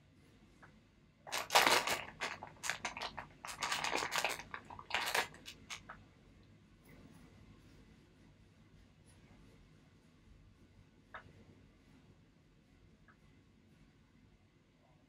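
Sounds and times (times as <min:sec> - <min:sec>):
face mask peeling and crackling: 0:01.3 - 0:05.9.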